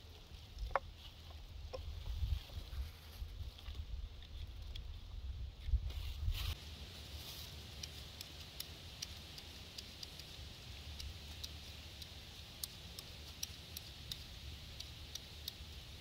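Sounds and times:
faint steady hiss: 0.0s - 16.0s
sharp crackles and ticks: 6.5s - 16.0s.

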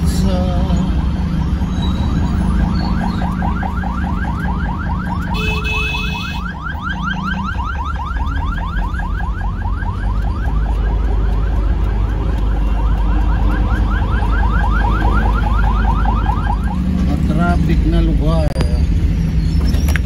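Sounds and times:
traffic and engine rumble: 0.0s - 20.0s
vehicle alarm whooping: 0.7s - 11.9s, 12.5s - 16.8s
steady high alarm tone: 1.3s - 11.0s.

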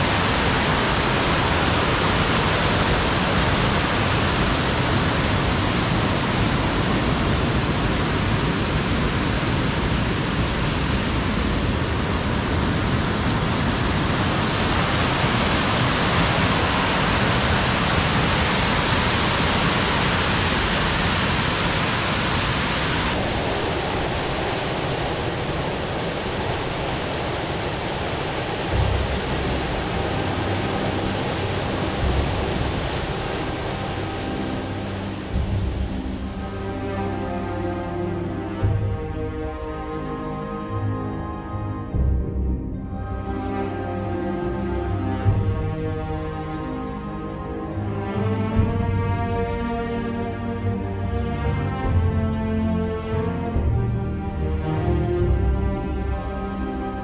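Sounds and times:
music: 0.0s - 9.8s, 28.6s - 57.0s
waterfall rushing: 0.0s - 42.0s.

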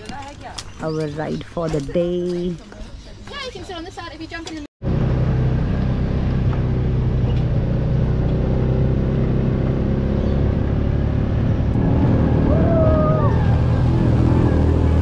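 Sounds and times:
utility vehicle engine running: 4.8s - 15.0s.

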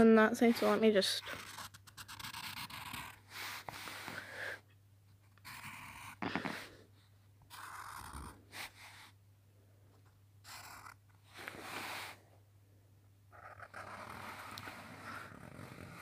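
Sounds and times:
marker scratching on paper: 0.4s - 4.2s, 5.3s - 6.7s, 7.5s - 9.2s, 10.5s - 12.2s, 13.4s - 16.0s.

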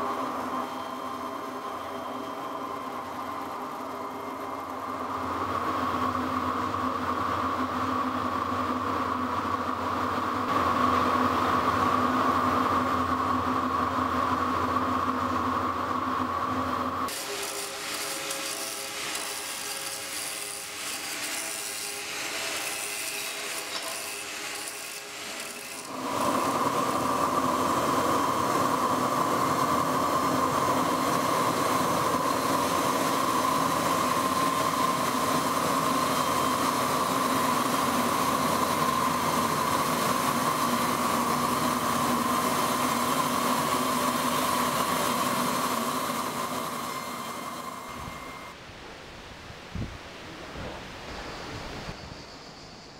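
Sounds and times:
stone saw grinding with whine: 17.1s - 48.5s.

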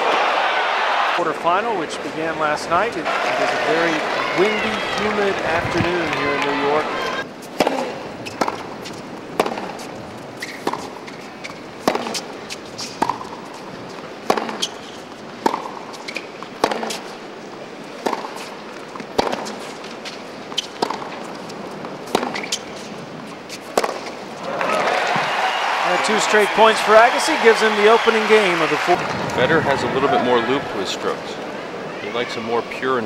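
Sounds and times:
racket striking tennis ball: 7.5s - 17.2s, 17.8s - 24.3s
tennis ball bouncing on hard court: 7.6s - 17.1s, 18.0s - 24.2s.

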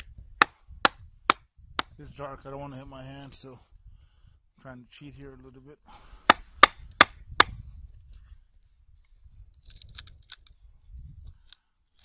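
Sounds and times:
sharp wooden knocks: 6.3s - 7.5s.

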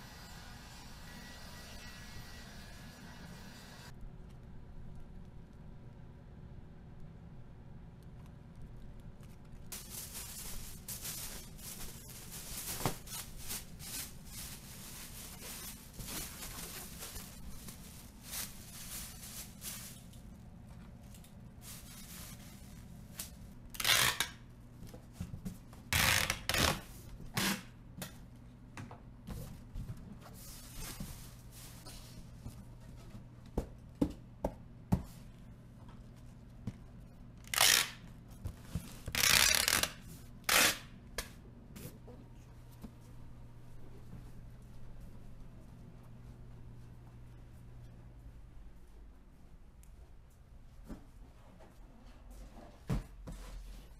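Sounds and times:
plastic bag rustling: 9.7s - 24.0s, 30.3s - 32.2s
loud tearing sounds: 23.8s - 24.4s, 37.4s - 38.0s, 39.1s - 40.9s.

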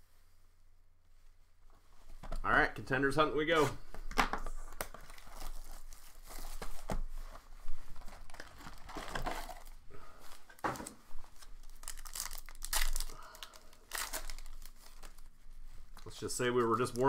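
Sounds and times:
plastic wrapping tearing and crinkling: 4.7s - 7.2s, 7.9s - 17.0s.

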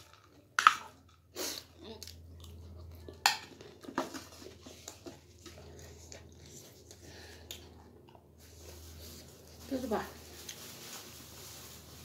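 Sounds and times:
chewing crunchy snack: 0.0s - 8.2s.

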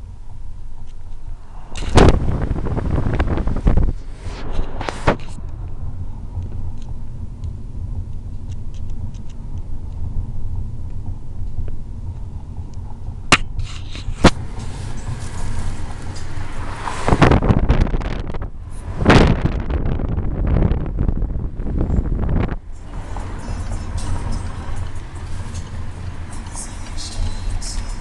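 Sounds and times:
car road and engine noise: 0.0s - 28.0s
wind rushing on microphone: 0.4s - 26.3s.

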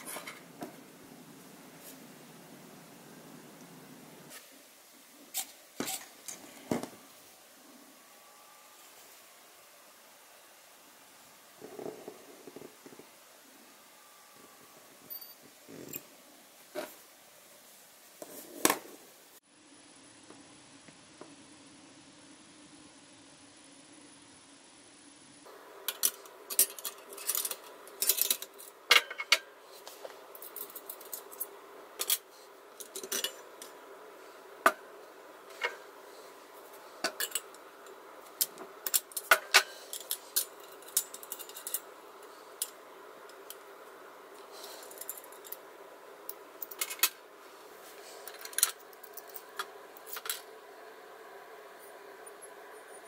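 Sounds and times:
metal parts and tools clinking: 15.0s - 16.1s, 25.8s - 29.5s, 30.3s - 33.8s, 37.0s - 43.6s, 44.6s - 45.6s, 46.3s - 47.2s, 48.2s - 50.5s.

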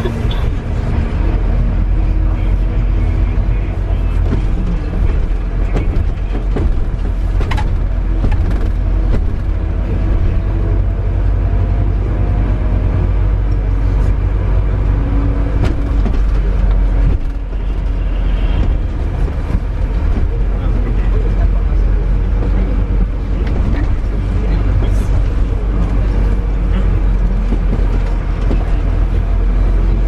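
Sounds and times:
bus engine and road rumble: 0.0s - 30.0s
bus body clicks and knocks: 3.8s - 11.0s, 14.8s - 30.0s.

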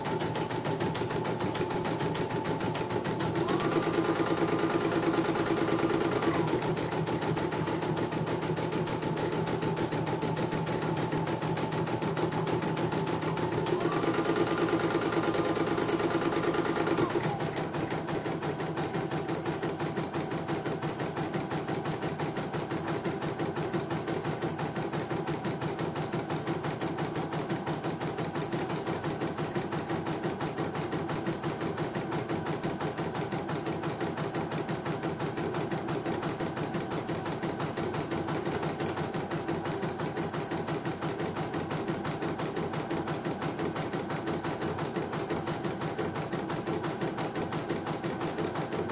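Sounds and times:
embroidery machine needle stitching: 0.0s - 48.9s.

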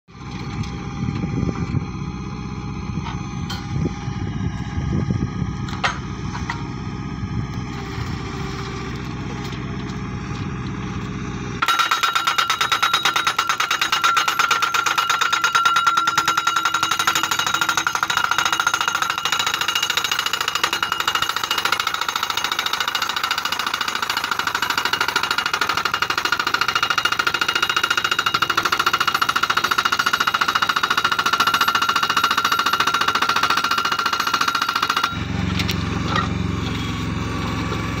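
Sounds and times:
machine engine running: 0.2s - 13.2s, 34.8s - 38.0s
hydraulic hammer pounding metal post: 11.6s - 36.4s.

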